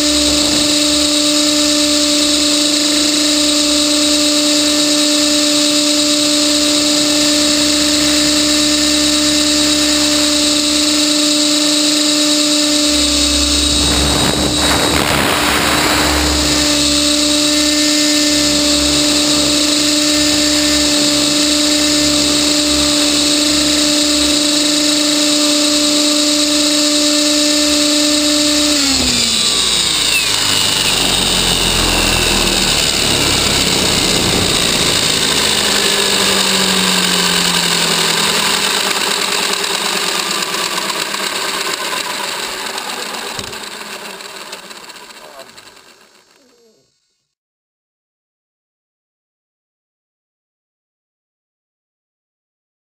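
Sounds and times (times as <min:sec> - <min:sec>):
helicopter rotor high whine: 0:00.0 - 0:47.2
brief rushing noise: 0:13.5 - 0:17.2.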